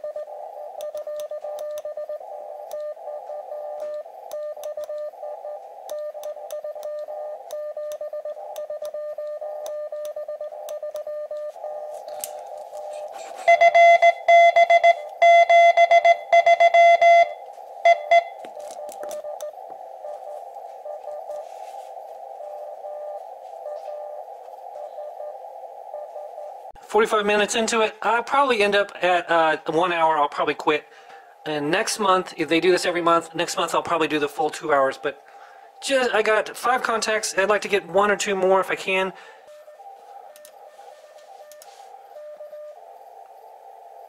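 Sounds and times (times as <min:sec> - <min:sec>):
morse code tone: 0:00.0 - 0:26.5, 0:38.0 - 0:42.8
receiver hiss: 0:00.0 - 0:44.0.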